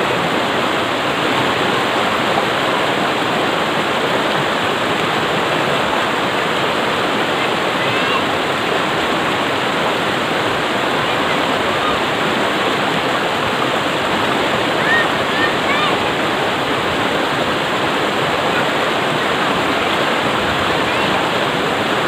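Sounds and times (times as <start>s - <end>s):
white water rushing over boulders: 0.0s - 22.0s.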